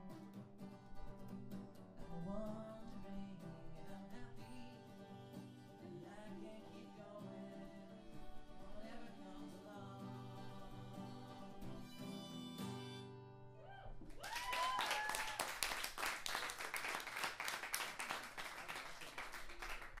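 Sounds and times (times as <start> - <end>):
acoustic guitar chord ringing: 0.0 - 13.6
cheers and whoops: 13.6 - 15.8
audience applause: 14.1 - 20.0.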